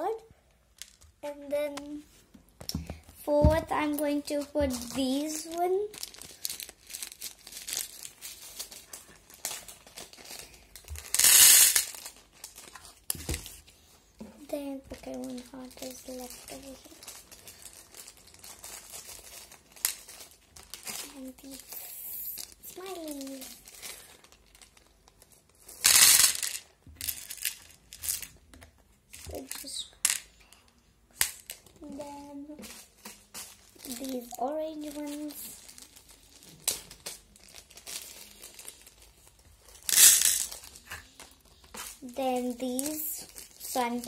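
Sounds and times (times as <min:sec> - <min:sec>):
plastic bag crinkling: 0:03.9 - 0:13.7, 0:14.6 - 0:28.4, 0:31.4 - 0:44.0
plastic beads rattling into container: 0:04.0 - 0:13.5, 0:14.9 - 0:28.4, 0:29.1 - 0:30.6, 0:31.2 - 0:44.0
beads clicking: 0:10.8 - 0:12.6, 0:25.8 - 0:28.4, 0:39.7 - 0:42.0.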